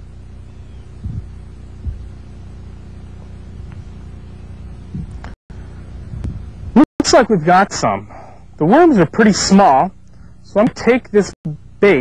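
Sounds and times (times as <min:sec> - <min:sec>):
steady low hum: 0:00.0 - 0:12.0
dull thumps: 0:04.9 - 0:05.4.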